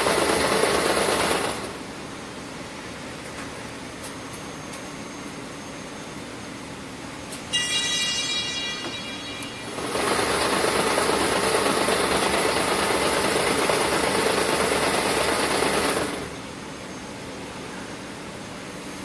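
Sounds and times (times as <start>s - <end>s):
high buzzing tone: 7.5s - 11.5s
braiding machine running: 7.7s - 16.4s.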